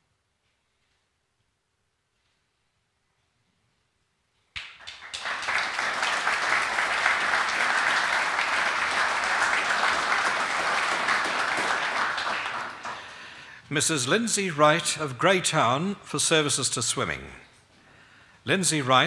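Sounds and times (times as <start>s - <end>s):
audience applauding: 4.6s - 13.5s.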